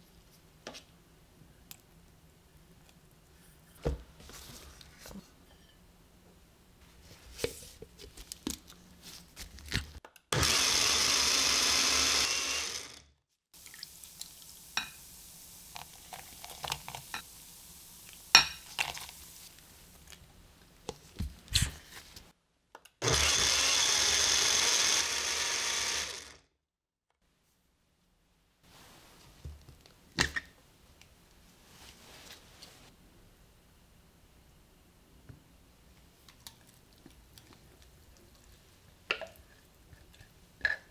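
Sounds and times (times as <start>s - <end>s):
blender grinding: 10.4s - 13.1s, 23.0s - 26.5s.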